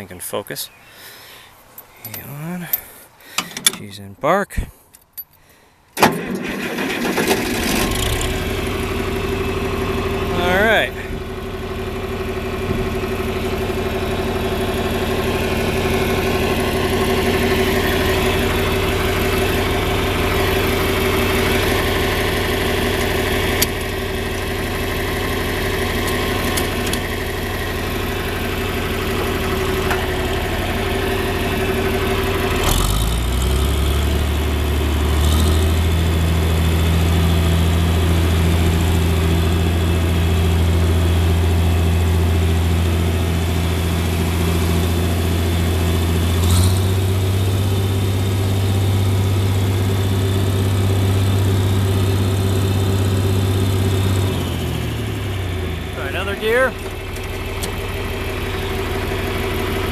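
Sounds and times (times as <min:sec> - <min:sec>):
tractor engine idling: 0:00.0 - 0:59.9.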